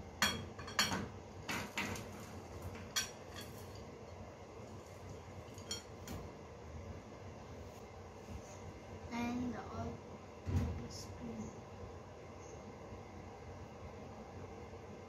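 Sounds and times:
dishes clinking: 0.2 - 2.1, 2.8 - 3.9, 5.5 - 5.9.

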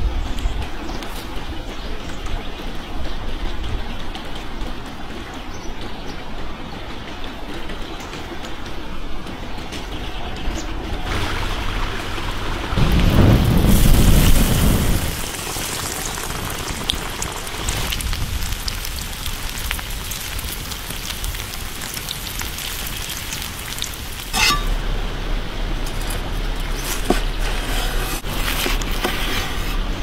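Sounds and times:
low rumbling noise: 9.9 - 28.5
chicken deep-frying in oil: 11.0 - 24.9.

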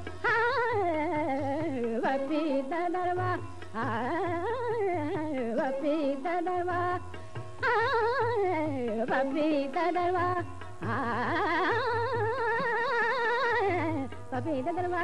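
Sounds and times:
instrumental accompaniment: 0.0 - 15.0
woman singing: 0.1 - 15.0.

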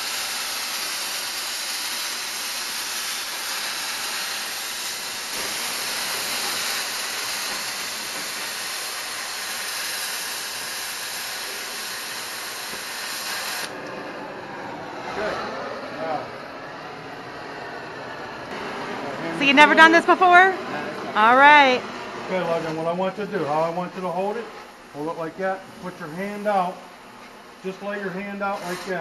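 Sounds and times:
cutting torch jet hissing: 0.0 - 19.2, 22.3 - 26.8, 27.6 - 29.0.

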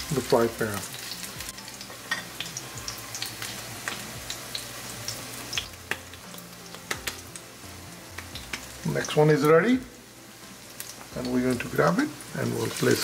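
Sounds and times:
patties sizzling in frying pan: 0.0 - 13.0.

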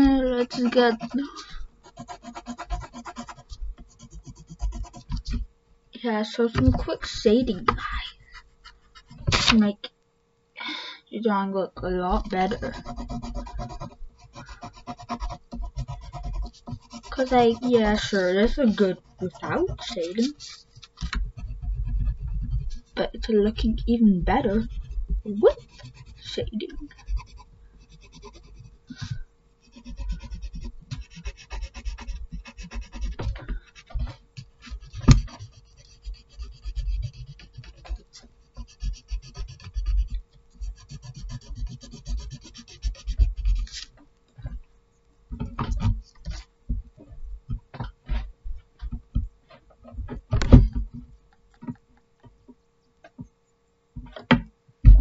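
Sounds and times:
pencil scratching on paper: 0.0 - 5.4, 12.2 - 28.8, 29.6 - 43.9.

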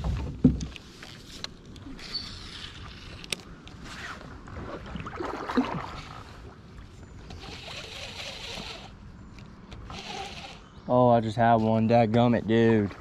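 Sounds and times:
water lapping against kayak hull: 0.0 - 10.8, 11.7 - 13.0.

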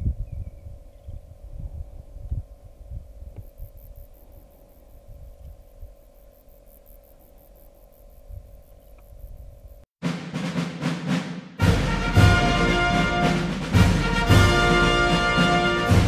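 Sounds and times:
wind buffeting microphone: 0.0 - 4.0, 4.8 - 6.1.

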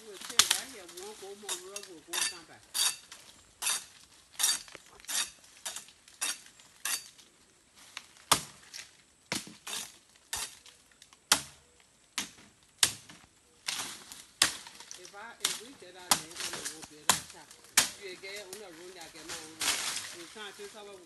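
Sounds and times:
machete chopping stems: 0.0 - 3.0, 8.2 - 8.6, 11.3 - 11.6, 12.2 - 18.6, 19.3 - 20.2.

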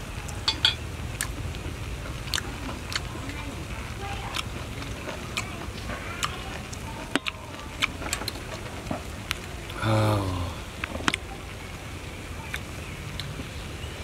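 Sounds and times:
low steady rumble: 0.0 - 14.0
wordless vocal exclamation: 9.8 - 10.8.

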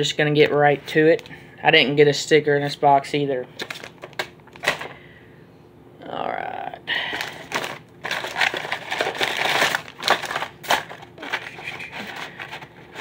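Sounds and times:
plastic packaging crinkling: 3.6 - 5.0, 7.1 - 13.0.

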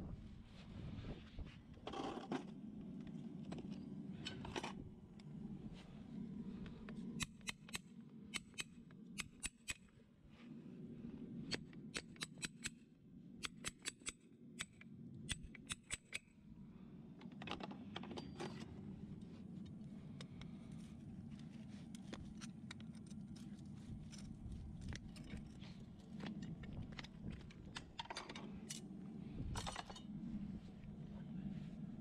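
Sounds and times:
hand tool clicks: 7.2 - 9.8, 11.5 - 12.8, 13.4 - 16.3.

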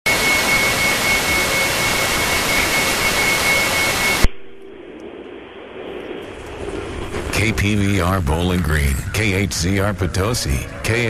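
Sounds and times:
thin steady whistle: 0.1 - 4.3
radio static hiss: 0.1 - 11.0
muffled radio sound: 2.2 - 11.0.

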